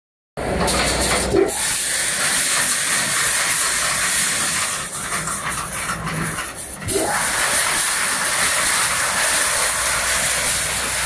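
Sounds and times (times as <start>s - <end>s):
welding machine hissing: 0.6s - 11.0s.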